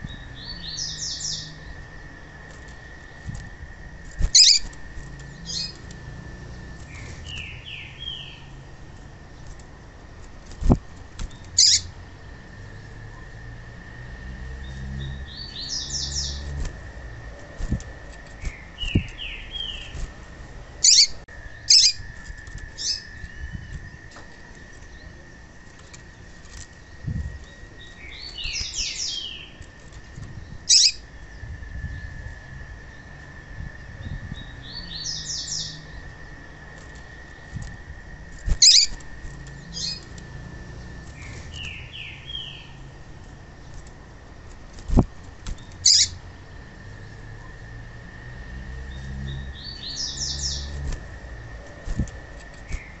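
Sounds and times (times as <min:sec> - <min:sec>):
bird chirping and twittering: 0:00.0 - 0:03.4, 0:04.0 - 0:09.9, 0:10.6 - 0:13.4, 0:14.4 - 0:43.0, 0:44.6 - 0:47.6, 0:48.8 - 0:53.0
wing flutters: 0:01.7 - 0:07.7, 0:08.7 - 0:12.2, 0:15.8 - 0:31.3, 0:35.5 - 0:46.5, 0:49.0 - 0:53.0.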